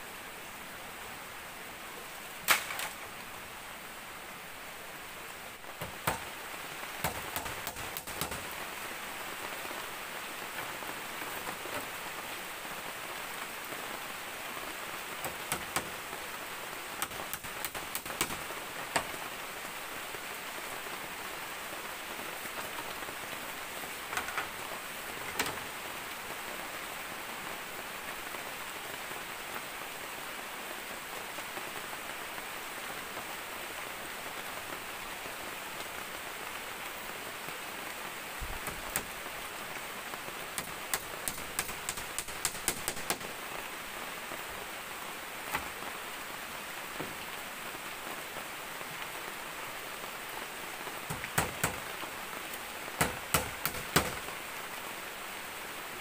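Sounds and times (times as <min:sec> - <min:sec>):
steady hiss: 0:00.0 - 0:56.0
bamboo slats clicking and knocking: 0:02.4 - 0:03.1, 0:05.8 - 0:06.4, 0:07.0 - 0:08.6, 0:15.2 - 0:16.0, 0:17.0 - 0:19.2, 0:24.1 - 0:24.6, 0:25.2 - 0:25.6, 0:38.6 - 0:39.1, 0:40.6 - 0:43.4, 0:51.1 - 0:51.9, 0:53.0 - 0:54.3.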